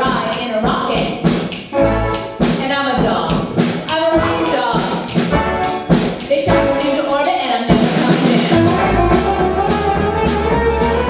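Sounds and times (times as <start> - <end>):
low beat: 0.7 - 7.0, 7.7 - 11.0
band playing: 1.7 - 11.0
voices singing: 2.6 - 8.8.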